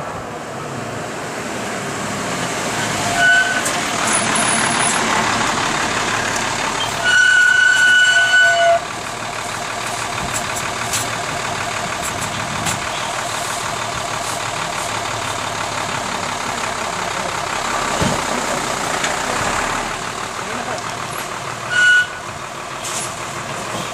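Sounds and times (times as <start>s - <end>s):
garbage truck diesel engine: 0.0s - 23.9s
road noise: 0.0s - 23.9s
loud horn-like tone: 6.9s - 8.8s, 21.7s - 22.2s.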